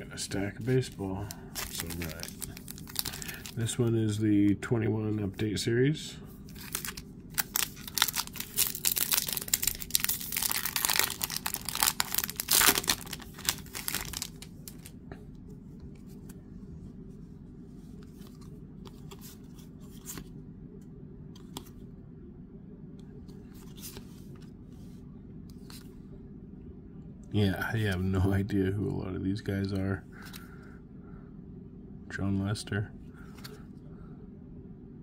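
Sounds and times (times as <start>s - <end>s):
foil wrapper tearing and crinkling: 1.6s - 3.6s, 6.5s - 14.9s.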